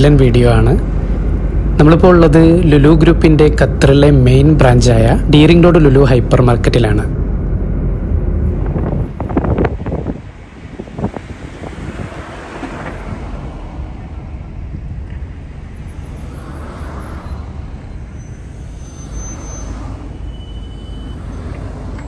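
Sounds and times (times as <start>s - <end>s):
road traffic rumble: 0.0s - 22.0s.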